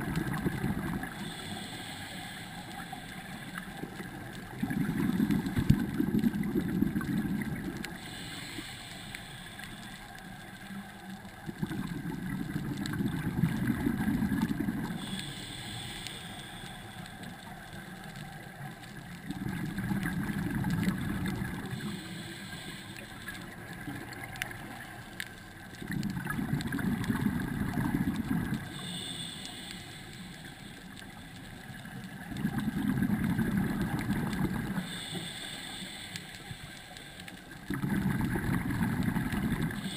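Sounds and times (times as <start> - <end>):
regulator inhalation hiss: 1.0 - 4.2, 7.9 - 10.4, 14.9 - 18.0, 21.2 - 23.6, 28.6 - 31.4, 34.7 - 37.6
bubbly exhale rumbles: 37.7 - 39.9.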